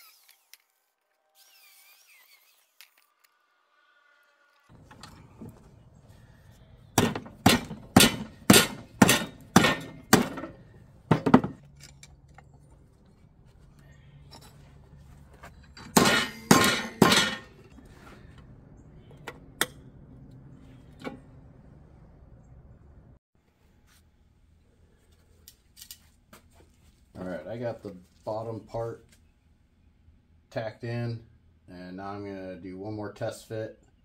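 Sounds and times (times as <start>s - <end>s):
hammer striking steel: 7.0s - 11.5s, 15.8s - 17.6s.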